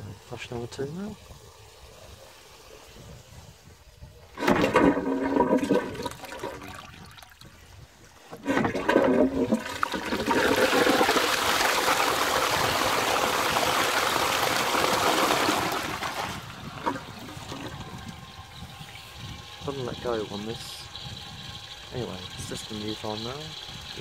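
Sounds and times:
water trickling: 0.0s - 24.0s
toilet flushing: 4.3s - 7.4s, 8.4s - 24.0s.

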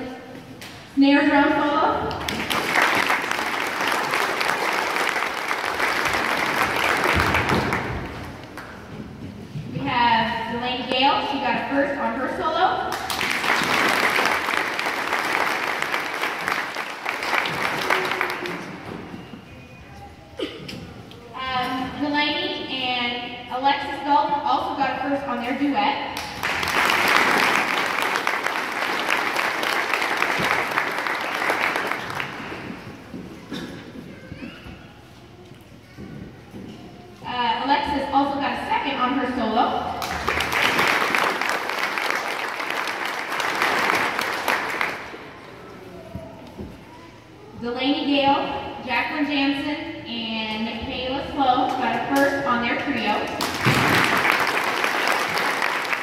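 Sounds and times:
audience applauding: 2.2s - 8.8s, 12.9s - 19.1s, 26.2s - 33.6s, 40.0s - 45.6s, 53.4s - 56.0s.

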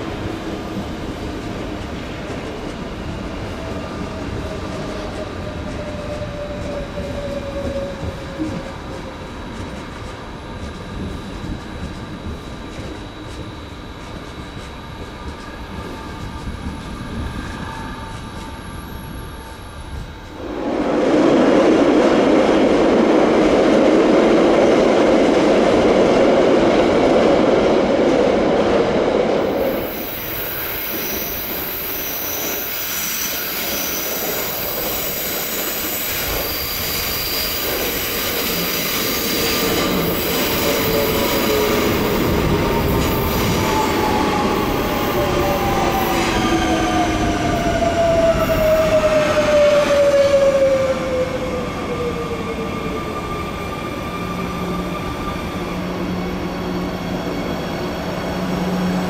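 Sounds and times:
electric train humming and whining: 0.0s - 59.0s
faint squeal: 15.6s - 20.3s, 29.5s - 57.7s
train pulling away: 29.1s - 59.0s.

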